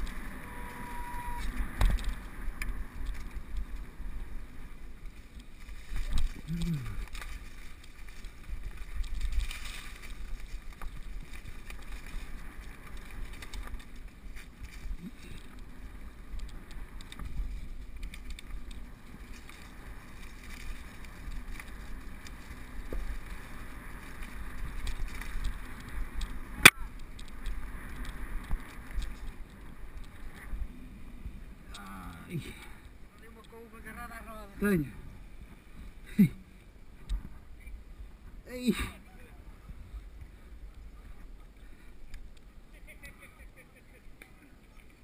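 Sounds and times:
wind on microphone: 0:00.0 - 0:04.6
bike rumbling and rattling: 0:00.0 - 0:33.8.

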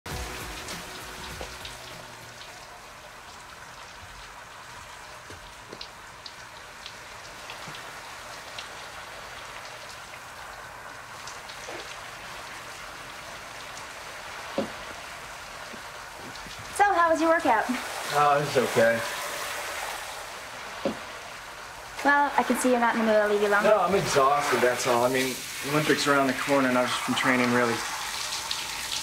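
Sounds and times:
shower running: 0:00.1 - 0:29.0.

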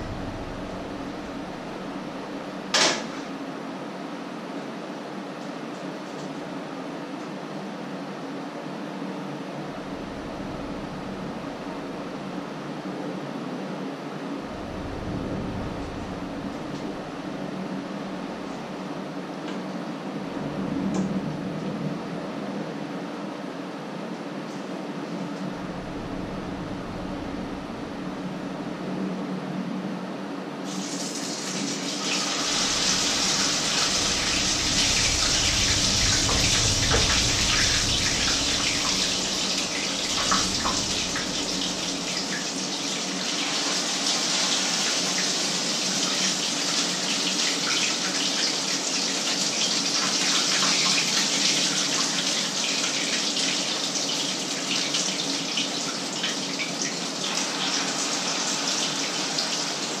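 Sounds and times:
low steady hum: 0:00.0 - 0:44.5
batter sizzling in hot oil: 0:30.7 - 1:00.0.

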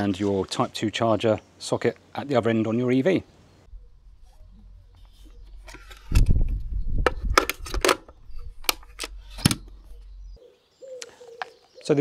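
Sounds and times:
plastic plug and lid clicks: 0:07.0 - 0:09.8.

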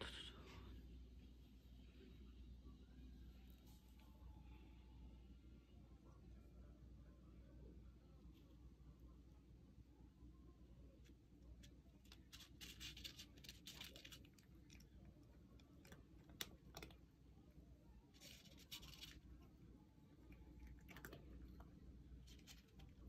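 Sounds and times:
cat pawing at dry kibble: 0:11.0 - 0:17.1
paper rustling: 0:12.0 - 0:14.8.

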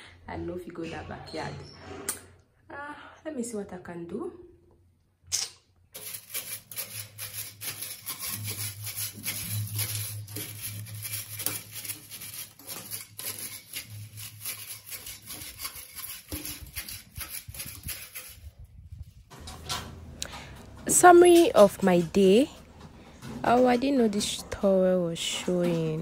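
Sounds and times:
broom sweeping grit: 0:06.0 - 0:19.2.

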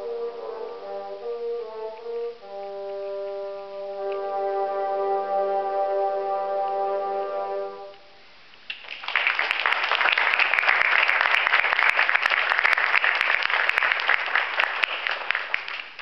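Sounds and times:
bassoon ensemble chord: 0:00.0 - 0:08.0
audience applauding: 0:08.7 - 0:16.0.

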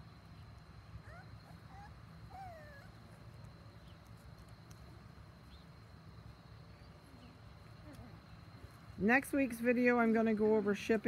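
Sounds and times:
puppies whining: 0:01.0 - 0:03.3.

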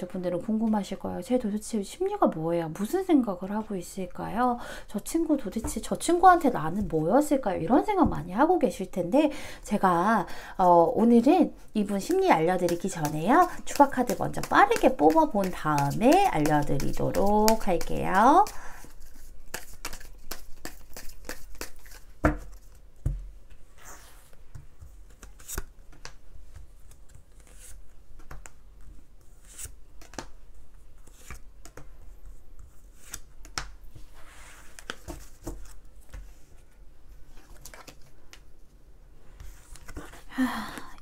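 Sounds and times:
cards shuffling and flicking: 0:12.1 - 0:22.8, 0:34.6 - 0:36.3.

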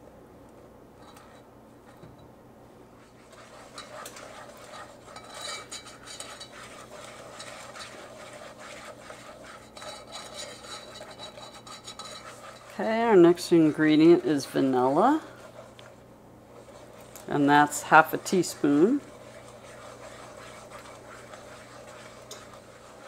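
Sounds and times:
whisk scraping and clicking in pan: 0:01.0 - 0:02.2, 0:03.0 - 0:23.0.

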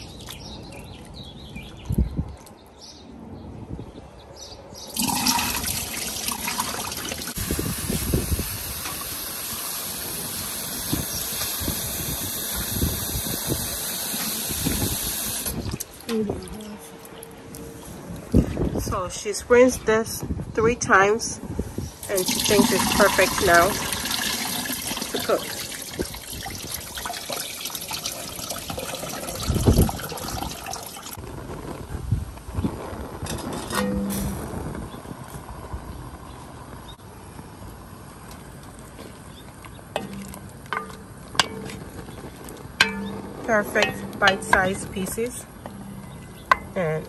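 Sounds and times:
tap water running: 0:05.0 - 0:15.8, 0:22.0 - 0:31.2.

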